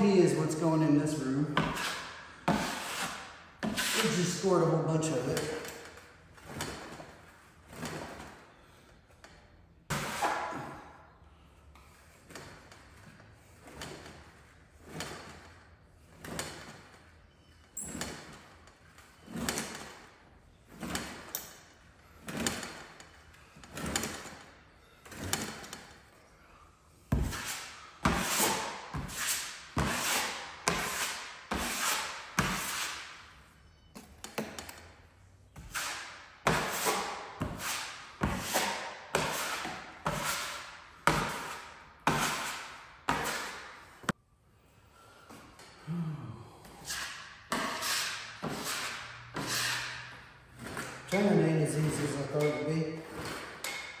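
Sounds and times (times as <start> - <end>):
drywall knife scraping: 1.1 - 5.8, 9.9 - 11.0, 27.1 - 33.4, 35.5 - 44.1, 46.7 - 54.0.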